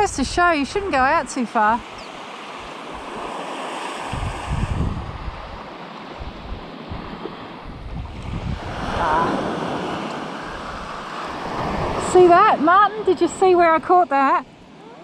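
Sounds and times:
small waves breaking on sand: 0.0s - 15.0s
wind on microphone: 0.0s - 15.0s.

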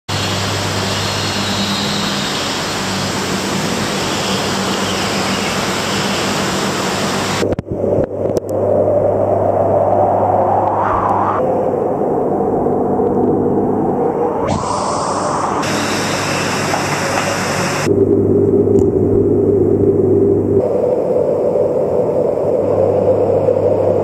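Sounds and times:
low pump hum: 6.6s - 24.0s
water rushing through tanks: 13.5s - 17.9s.

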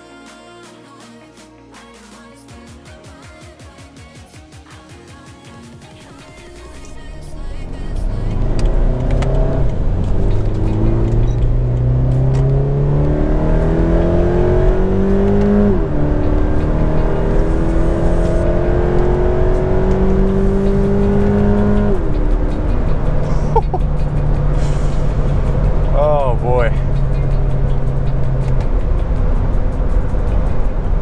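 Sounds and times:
car engine accelerating: 6.6s - 31.0s.

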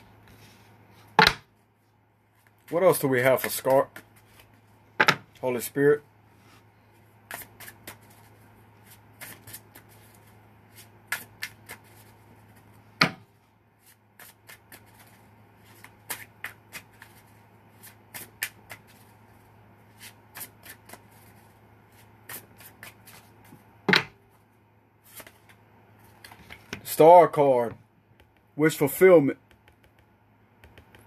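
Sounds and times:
cards being shuffled: 2.4s - 4.7s, 7.3s - 12.8s, 13.8s - 23.6s, 25.0s - 26.9s.

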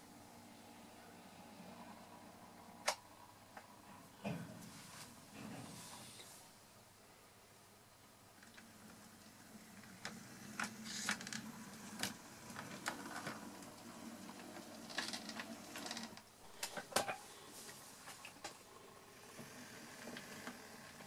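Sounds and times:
wheels clicking over rail gaps: 8.4s - 16.9s.

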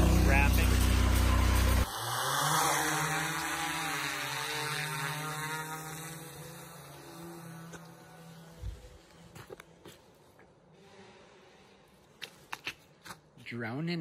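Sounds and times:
drone propellers humming: 0.0s - 9.1s.

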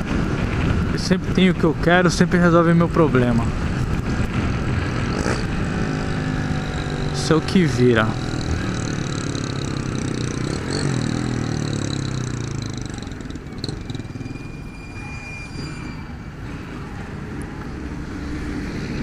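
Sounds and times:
motorcycle engine running low: 3.5s - 14.4s.

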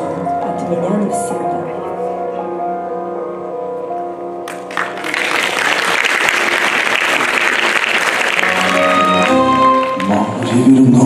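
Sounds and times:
soft sustained music: 0.0s - 11.0s
audience applause: 4.5s - 11.0s.

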